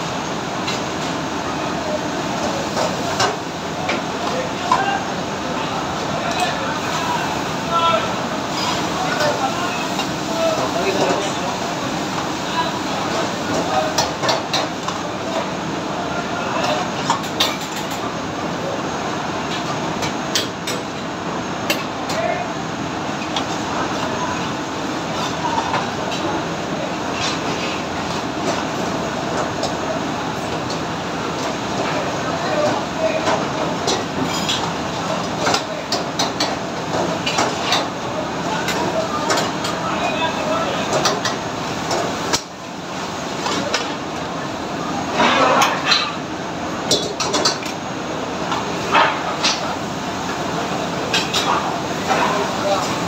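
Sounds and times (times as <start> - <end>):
kitchen range and extractor roar: 0.0 - 53.0.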